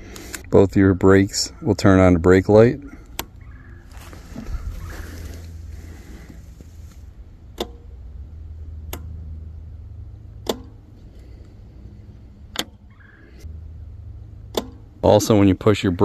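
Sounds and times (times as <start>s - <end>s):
low steady rumble: 0.0s - 16.0s
brake lever clicks: 10.4s - 10.8s, 12.5s - 13.1s, 14.5s - 14.8s.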